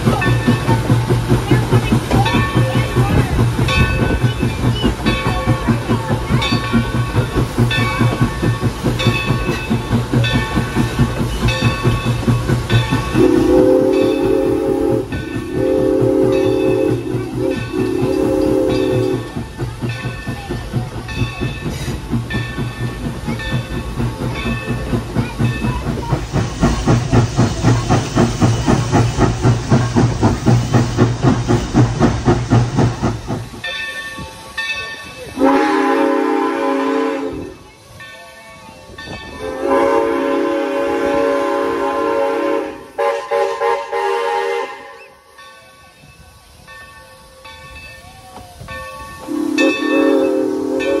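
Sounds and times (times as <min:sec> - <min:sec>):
steam locomotive exhaust chuffing: 0:00.0 - 0:51.0
steam whistle blasts: 0:13.2 - 0:19.3, 0:35.4 - 0:37.6, 0:39.4 - 0:45.2, 0:49.2 - 0:51.0.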